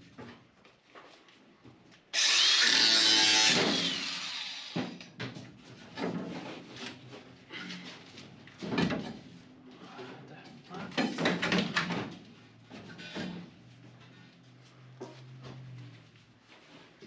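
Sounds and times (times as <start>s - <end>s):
angle grinder grinding steel: 2.2s - 5.0s.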